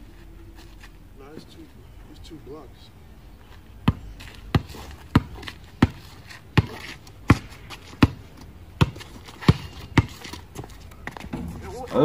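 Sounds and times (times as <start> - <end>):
basketball bouncing on concrete: 3.8 - 12.0.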